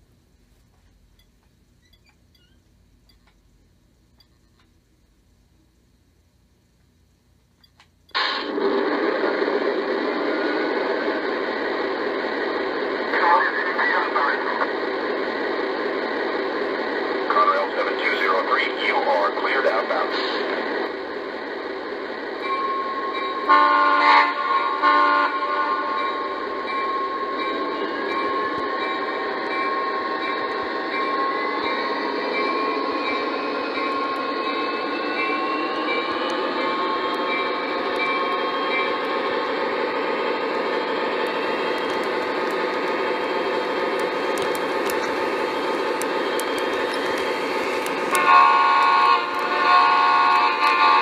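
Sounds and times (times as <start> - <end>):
model train running on track: 8.1 - 51.0
electronic train horn: 23.4 - 26.3, 48.0 - 51.0.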